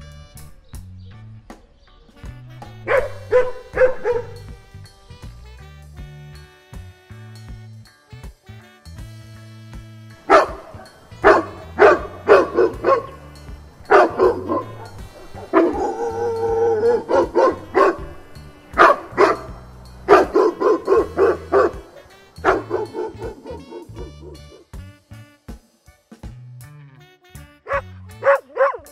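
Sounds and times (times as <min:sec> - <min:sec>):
background music: 0:00.0 - 0:28.9
dog barking: 0:02.9 - 0:04.4, 0:10.3 - 0:24.6, 0:27.7 - 0:28.9.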